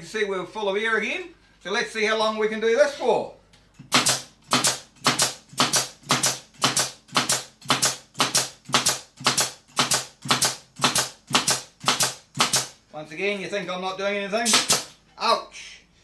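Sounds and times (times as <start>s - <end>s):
pneumatic nailer firing into wood: 3.8s - 12.8s, 14.4s - 15.0s.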